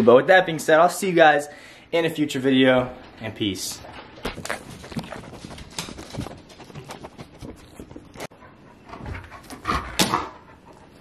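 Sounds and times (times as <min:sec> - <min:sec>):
dog panting: 0:04.6 - 0:11.0.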